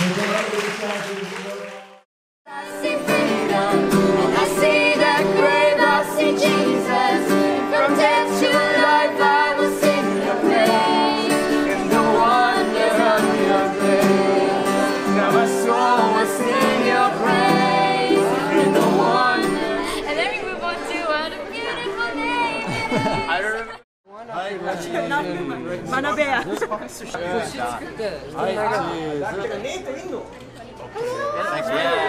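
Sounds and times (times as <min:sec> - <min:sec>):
acoustic guitar strumming: 0:02.5 - 0:20.0
people singing together: 0:02.5 - 0:20.6.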